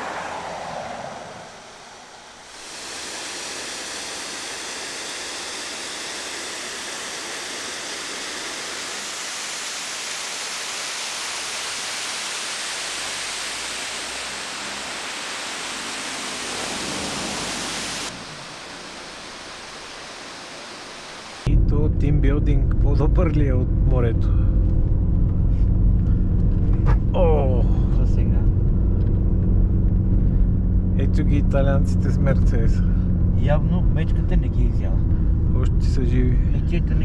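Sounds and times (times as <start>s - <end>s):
steady rushing noise: 0.0s - 21.7s.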